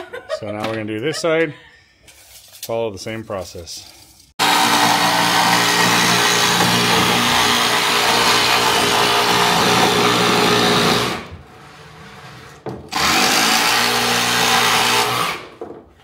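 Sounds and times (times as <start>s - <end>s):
power saw cutting plywood: 4.4s - 15.6s.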